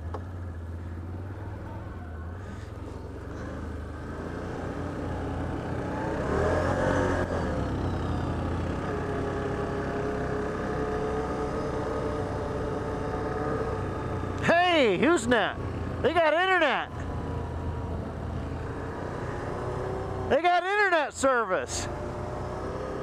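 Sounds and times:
atv engine running: 0.0s - 20.4s.

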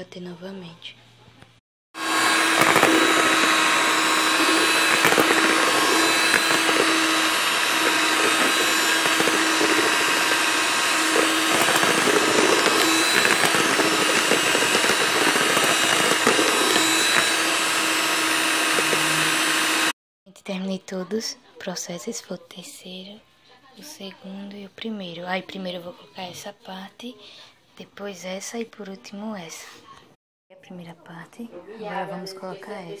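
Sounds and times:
electric hand mixer whirring: 2.0s - 20.0s.

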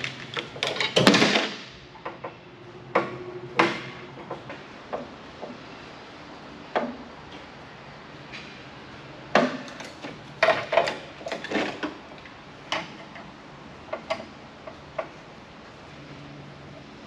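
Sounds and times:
metal parts clinking: 0.0s - 1.4s.

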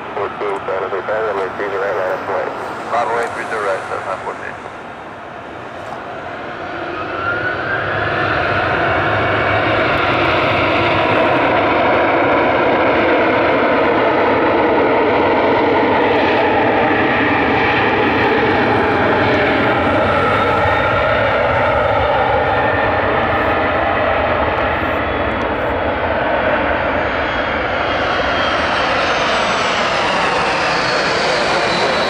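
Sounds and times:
jet engines spooling up: 0.0s - 32.0s.

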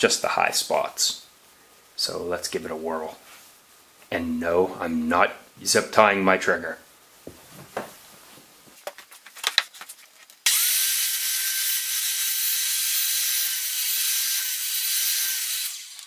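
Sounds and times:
circular saw cutting wood: 10.5s - 16.0s.

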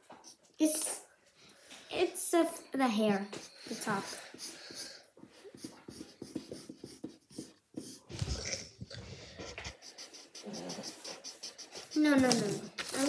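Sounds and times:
markers scratching on paper: 3.3s - 13.0s.

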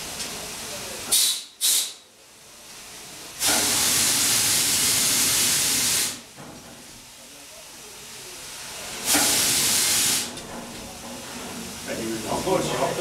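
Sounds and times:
hissing air nozzle blasts: 1.1s - 2.0s, 3.4s - 6.2s, 9.0s - 10.4s.

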